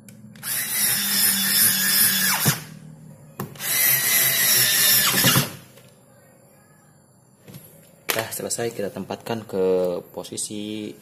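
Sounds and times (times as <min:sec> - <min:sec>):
electric screwdriver driving screws: 0:00.4 - 0:02.7, 0:03.6 - 0:05.6.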